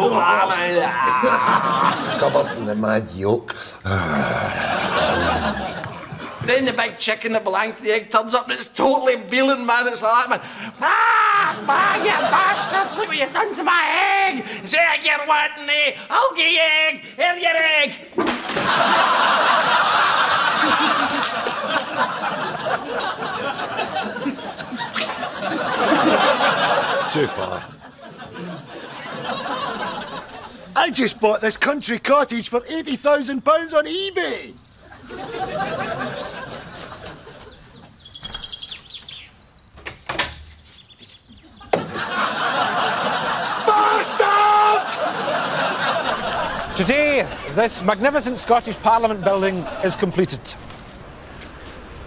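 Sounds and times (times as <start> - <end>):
studio audience laughing: 0.0 - 2.8, 4.4 - 6.5, 11.4 - 13.6, 18.4 - 30.8, 34.9 - 37.7, 41.4 - 50.4
short bird chirp: 38.0 - 39.8
door latch clicks: 39.8 - 40.5.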